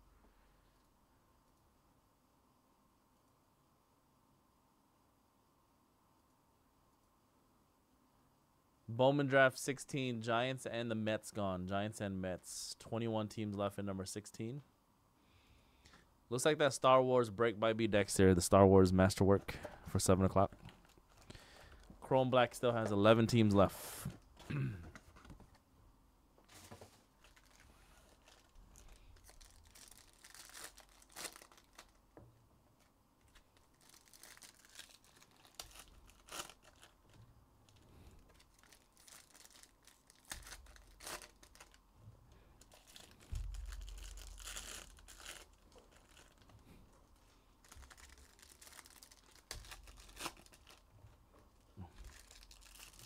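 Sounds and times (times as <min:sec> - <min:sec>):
foil wrappers crinkling: 0:26.5 - 0:32.2, 0:32.8 - 0:41.8, 0:42.6 - 0:50.9, 0:51.8 - 0:53.0.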